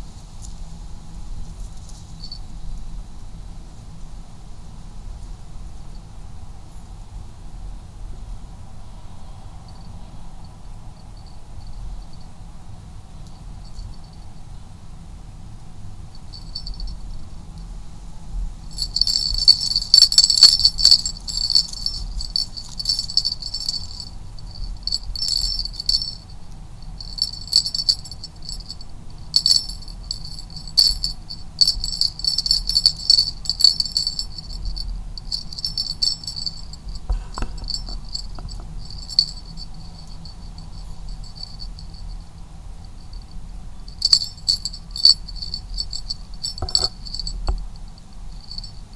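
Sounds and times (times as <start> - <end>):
jingle bell jingling: 16.3 - 17.0, 18.7 - 42.1, 43.9 - 48.8.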